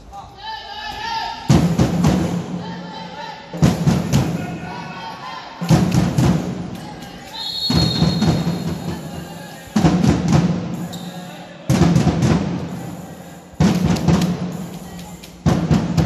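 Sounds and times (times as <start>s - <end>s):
heavy drumbeat: 1.5s - 2.7s, 3.5s - 4.7s, 5.6s - 6.9s, 7.6s - 10.9s, 11.7s - 16.0s
voices: 6.7s - 10.1s, 10.7s - 15.5s
shrill whistle blast: 7.3s - 9.7s, 10.7s - 11.5s.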